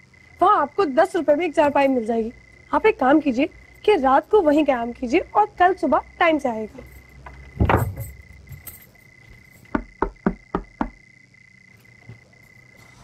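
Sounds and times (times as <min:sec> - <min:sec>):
crickets chirring: 0:00.0 - 0:13.0
door thudding shut: 0:07.5 - 0:08.3
knocking on wooden door: 0:09.7 - 0:11.0.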